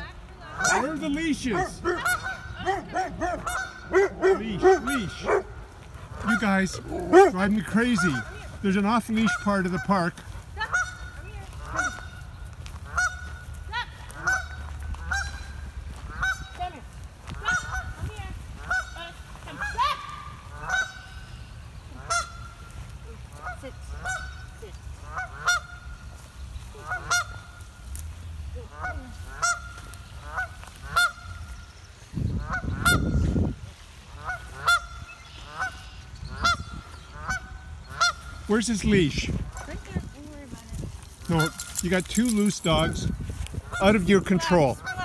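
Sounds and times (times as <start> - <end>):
goose honking: 0.4 - 5.4, 6.0 - 16.7, 17.4 - 22.6, 23.3 - 26.0, 26.8 - 27.6, 28.6 - 31.5, 32.4 - 33.4, 34.1 - 40.0, 41.3 - 45.0.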